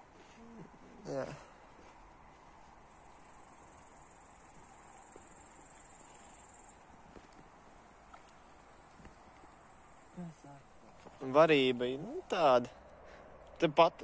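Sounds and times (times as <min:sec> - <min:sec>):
high insect trill: 0:02.9 - 0:06.9, 0:08.5 - 0:10.8.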